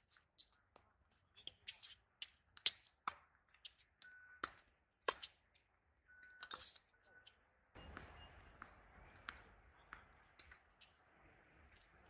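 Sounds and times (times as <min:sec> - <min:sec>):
tennis ball bounces: 0:07.8 - 0:12.0.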